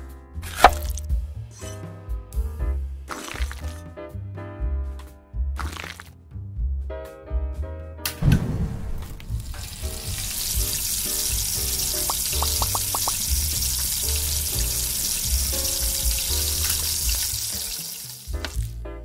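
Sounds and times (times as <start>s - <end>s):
background music with low beat: 0.0s - 5.6s, 6.3s - 17.5s
oil sizzling in pan: 9.1s - 18.8s.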